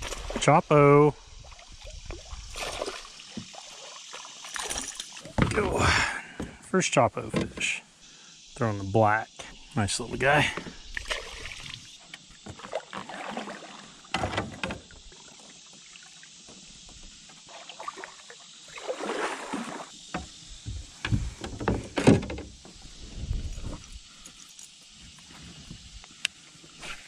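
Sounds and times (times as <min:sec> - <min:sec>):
paddle splashing in water: 0:01.5 - 0:05.9, 0:10.6 - 0:22.6.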